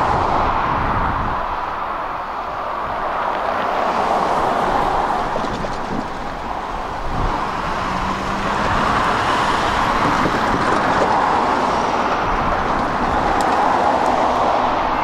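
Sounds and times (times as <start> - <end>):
diesel locomotives rumbling: 0.0 - 15.0.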